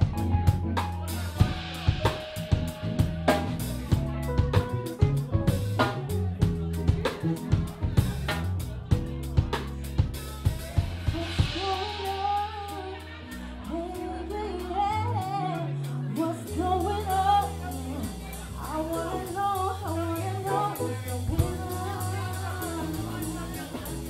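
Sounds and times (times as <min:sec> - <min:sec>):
drum hits: 0:00.0 - 0:12.8
bass notes: 0:00.0 - 0:24.0
person singing: 0:00.8 - 0:08.3, 0:09.0 - 0:24.0.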